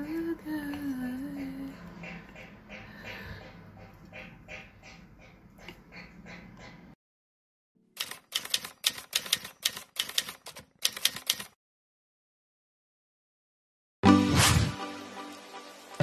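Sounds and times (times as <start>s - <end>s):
typewriter key clacks: 8.0s - 11.6s.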